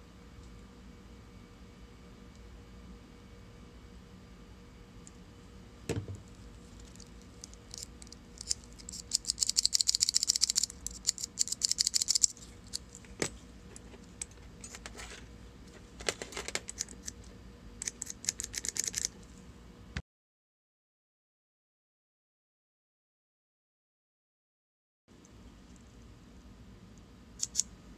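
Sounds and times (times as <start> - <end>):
single knock: 5.9 - 6.2.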